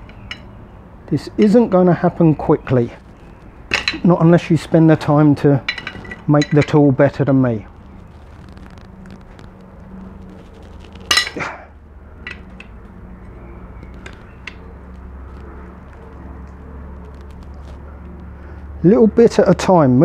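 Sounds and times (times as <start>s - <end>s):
low hum: 7.5s - 18.8s.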